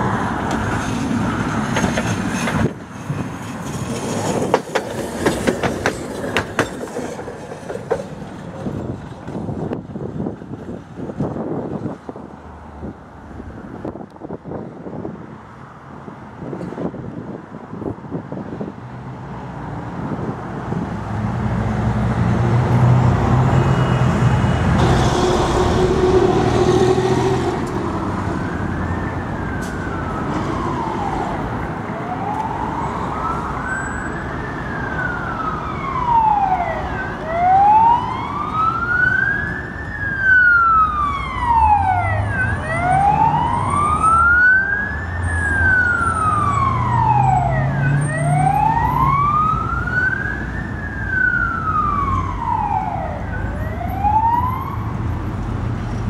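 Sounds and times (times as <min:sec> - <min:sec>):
street traffic rumble: 0:00.0 - 0:56.0
emergency vehicle siren wailing: 0:23.0 - 0:55.5.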